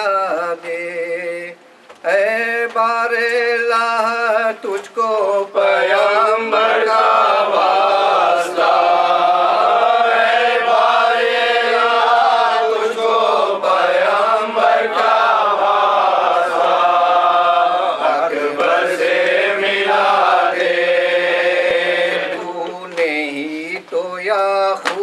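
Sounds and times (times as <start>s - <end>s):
man chanting: 22.3s - 25.0s.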